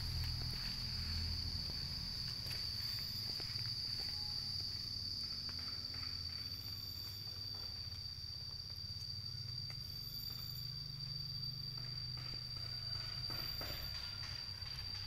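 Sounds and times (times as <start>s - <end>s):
insect drone: 0.0s - 15.0s.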